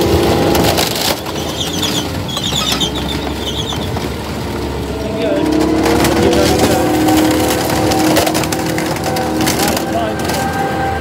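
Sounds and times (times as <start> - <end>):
vehicle engine running: 0.0 - 11.0
short high squeaks: 1.1 - 4.0.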